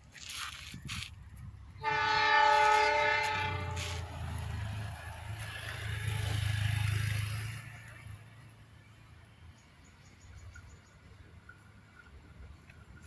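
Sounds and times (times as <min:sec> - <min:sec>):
low rumble of train: 0:00.0 - 0:13.0
locomotive horn blast: 0:01.8 - 0:04.3.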